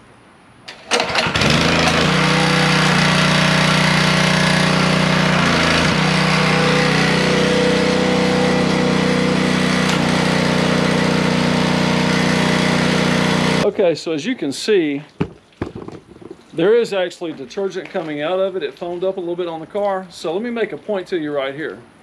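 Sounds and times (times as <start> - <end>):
pressure washer engine running: 0.9 - 13.7.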